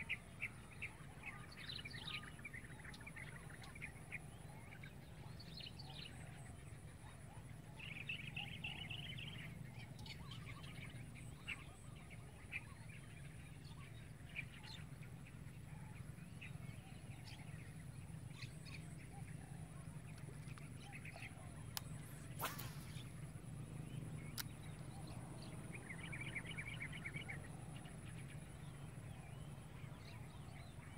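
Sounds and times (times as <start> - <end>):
low outdoor ambient hum: 0.0 - 30.9
small birds chirping: 0.0 - 30.9
sharp click: 21.8 - 23.0.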